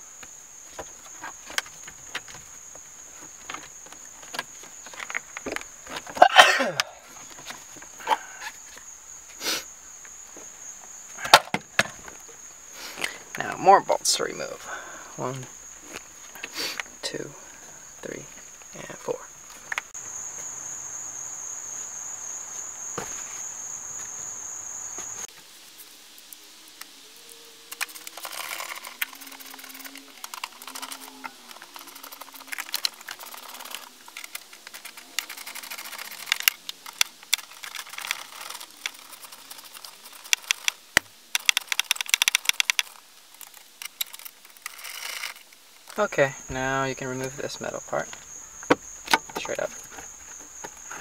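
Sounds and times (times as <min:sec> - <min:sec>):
hand tools and bolts clicking: 0:27.7 - 0:46.1.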